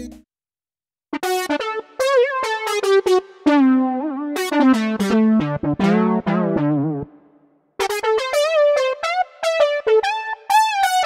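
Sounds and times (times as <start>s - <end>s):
brassy synthesizer melody: 1.2s - 11.0s.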